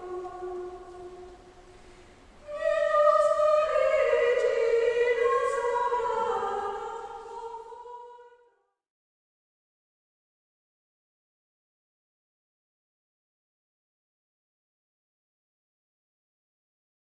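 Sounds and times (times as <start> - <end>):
choir singing slowly: 0.0 - 8.6.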